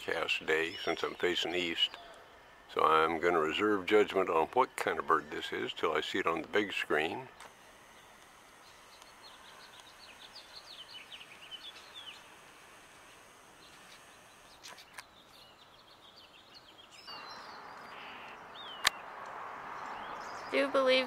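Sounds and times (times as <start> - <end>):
songbird chirping: 0.0 - 21.0
sharp clicks: 7.3 - 15.1, 17.8 - 19.4.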